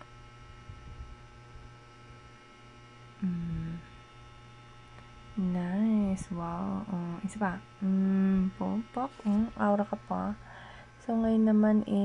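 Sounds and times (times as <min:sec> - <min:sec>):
electrical mains hum with whine: 0:00.0 - 0:12.0
person humming: 0:03.2 - 0:03.9, 0:07.8 - 0:10.3
person speaking: 0:05.4 - 0:10.4.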